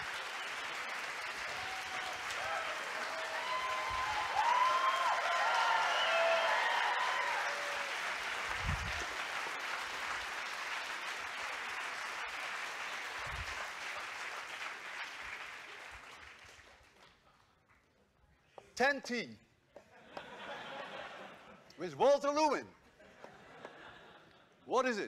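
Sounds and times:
audience applauding: 0.0 - 17.3.

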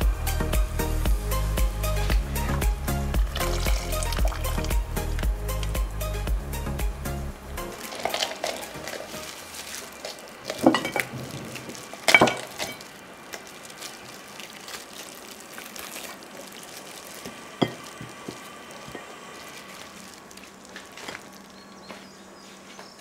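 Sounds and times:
cooked chicken tearing: 7.7 - 21.7.

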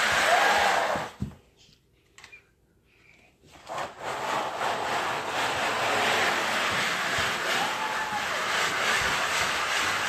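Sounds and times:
plastic basket scraping floor: 3.5 - 10.0.

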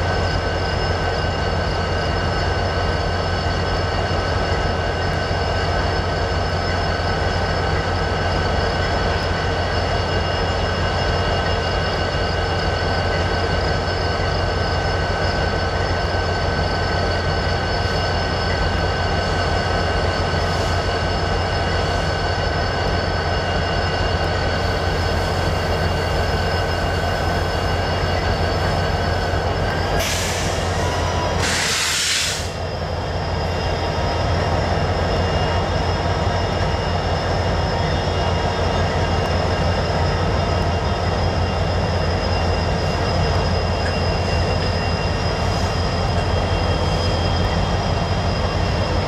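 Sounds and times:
diesel locomotives idling: 0.0 - 49.0
brief air hiss: 30.0 - 32.6.

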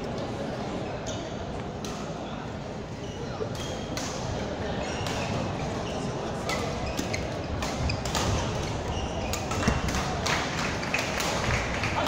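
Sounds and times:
din of play in sports hall: 0.0 - 12.0
rackets hitting shuttlecock: 6.4 - 12.0.

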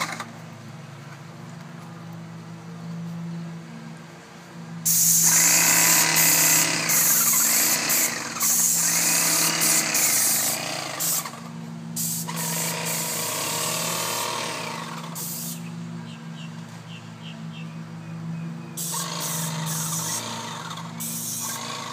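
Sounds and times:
paint sprayer hissing: 4.8 - 15.8, 18.8 - 21.9.

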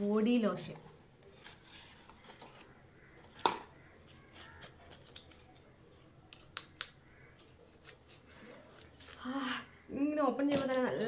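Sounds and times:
cardboard rustling and scraping: 1.4 - 5.6.

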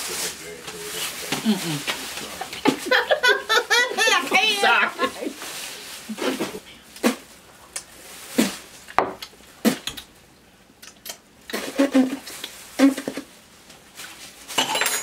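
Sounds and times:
person humming: 1.3 - 2.0
wrappers and cups clattering: 13.9 - 15.0.

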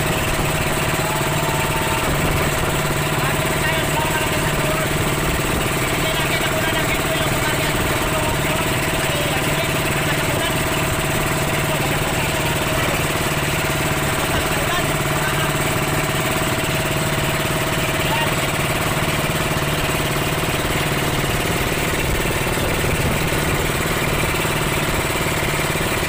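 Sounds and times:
motorboat engine running: 0.0 - 26.0.

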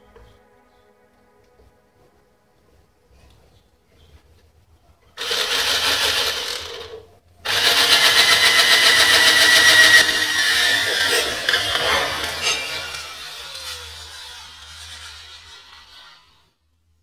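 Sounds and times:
cordless drill drilling into wood: 5.2 - 16.4.

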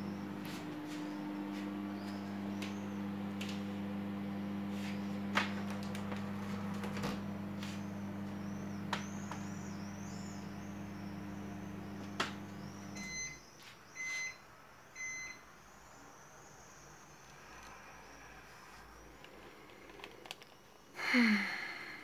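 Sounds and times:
microwave oven humming: 0.0 - 14.4
microwave beeps: 5.8 - 15.5.

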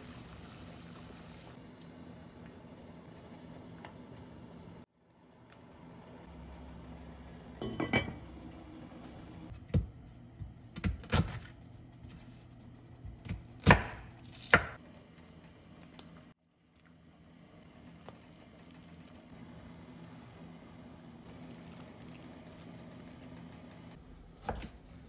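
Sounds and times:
knife cutting onion on wooden board: 13.1 - 14.8.

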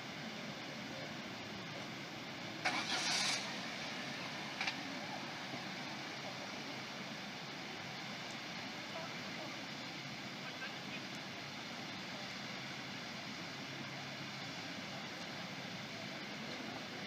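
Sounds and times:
loud hiss: 0.0 - 17.0
outdoor background noise: 0.0 - 17.0.

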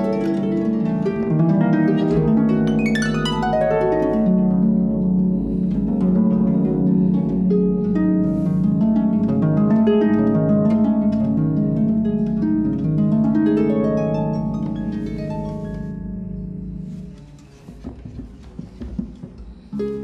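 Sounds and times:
harp playing: 0.0 - 20.0.

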